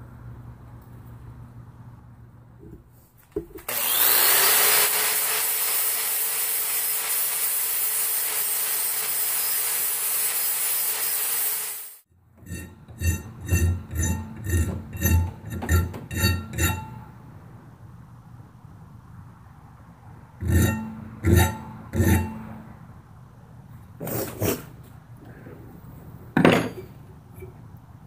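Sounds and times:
angle grinder grinding steel: 3.7s - 17.1s, 20.4s - 22.7s
file rasping on steel: 12.4s - 17.0s, 20.4s - 22.6s.

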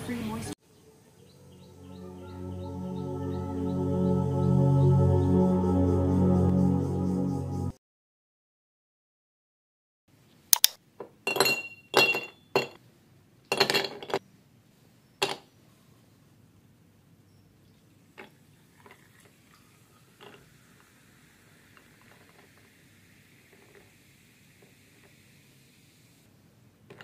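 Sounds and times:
ice cubes clinking in a glass: 18.2s - 22.7s, 23.4s - 23.9s.

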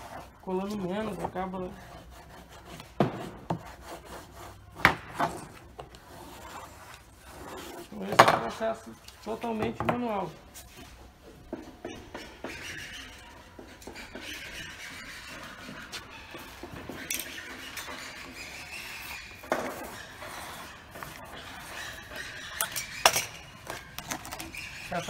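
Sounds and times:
knife scraping plastic edging: 17.2s - 25.0s.

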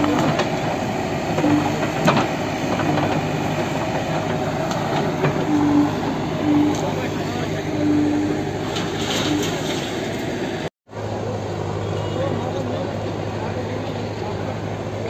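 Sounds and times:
machinery clattering: 0.0s - 10.6s
heavy machinery engine running: 0.0s - 15.0s
short squeals: 5.4s - 7.0s, 7.6s - 9.8s.

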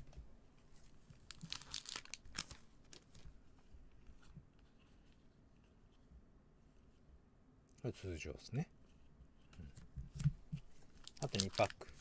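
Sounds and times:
wrapper crinkling: 1.2s - 3.2s, 11.0s - 12.0s
foil wrapper ripping: 1.3s - 2.6s, 11.0s - 11.9s.

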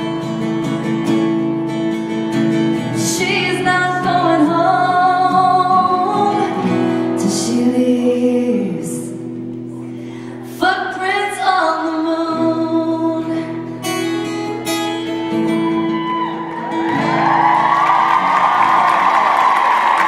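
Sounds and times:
acoustic guitar: 0.0s - 20.0s
woman singing: 2.8s - 9.4s, 10.4s - 14.1s
audience cheering and applauding: 15.4s - 20.0s.

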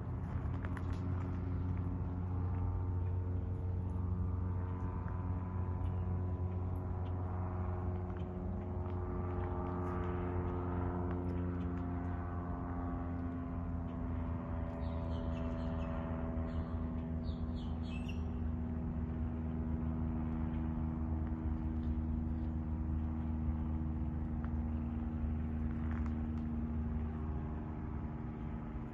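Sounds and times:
low engine drone: 0.0s - 28.9s
high bird chirps: 16.5s - 18.4s.

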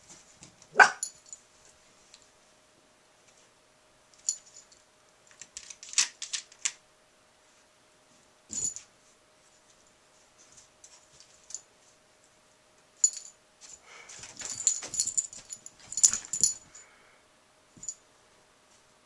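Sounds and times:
light jingling rattles: 4.2s - 4.9s, 8.5s - 8.9s, 13.0s - 16.9s.

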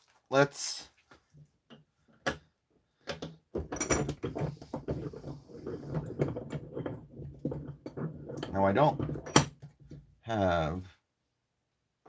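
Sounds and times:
hard objects tapping and rattling: 1.7s - 10.1s.

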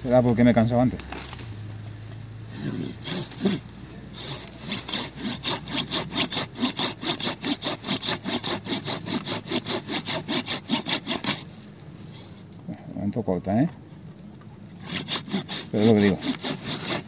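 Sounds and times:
pull saw cutting through log: 2.4s - 11.8s, 14.8s - 17.0s.

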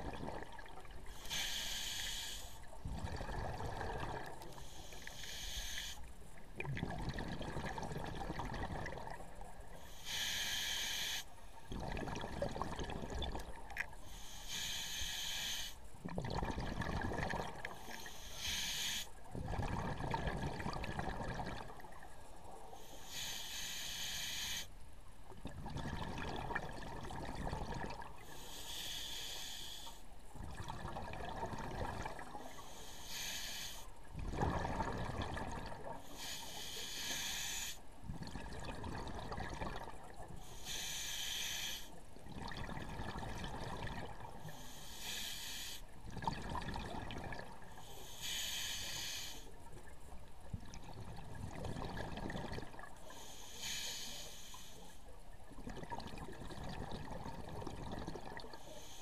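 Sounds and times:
exhaled bubbles gurgling: 0.0s - 5.8s, 6.4s - 10.2s, 11.6s - 14.0s, 16.0s - 22.6s, 25.3s - 28.3s, 30.4s - 32.8s, 34.1s - 40.9s, 42.1s - 44.8s, 45.9s - 48.2s, 48.9s - 53.3s, 55.3s - 59.0s
regulator hiss on inhale: 1.0s - 2.8s, 4.2s - 6.4s, 9.7s - 11.6s, 14.0s - 16.0s, 17.6s - 19.3s, 22.6s - 24.8s, 28.2s - 30.3s, 32.3s - 34.1s, 35.9s - 38.0s, 40.3s - 42.1s, 44.3s - 46.0s, 47.6s - 49.9s, 53.0s - 55.1s, 58.4s - 59.0s.

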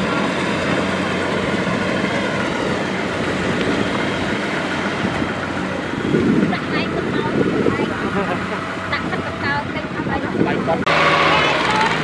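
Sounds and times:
combine harvester engine: 0.0s - 12.0s
small tractor engine: 0.0s - 12.0s.

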